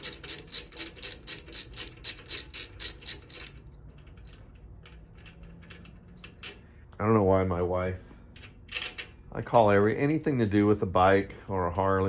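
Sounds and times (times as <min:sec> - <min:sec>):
ratchet wrench clicking: 0:00.0 - 0:04.3.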